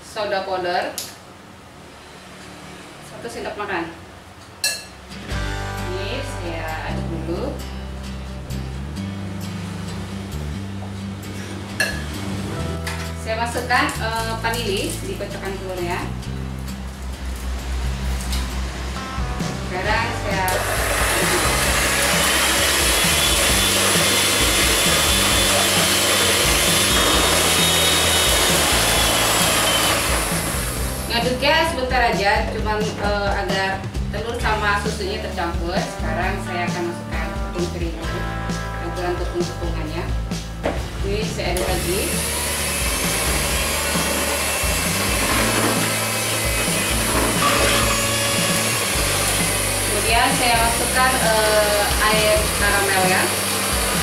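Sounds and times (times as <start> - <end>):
background music: 4.6 - 54.0
electric hand mixer running: 20.3 - 31.2, 41.6 - 54.0.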